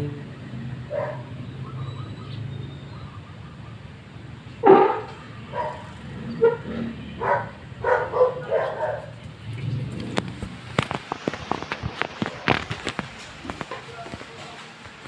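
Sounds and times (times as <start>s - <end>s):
dog barking: 0.9s - 1.8s, 4.6s - 9.2s
rapid sharp cracks: 10.0s - 15.0s.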